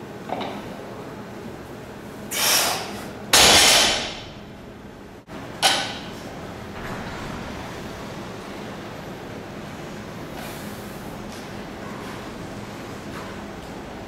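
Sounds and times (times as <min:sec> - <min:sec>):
barbell crashing on rubber floor: 0:03.3 - 0:04.4.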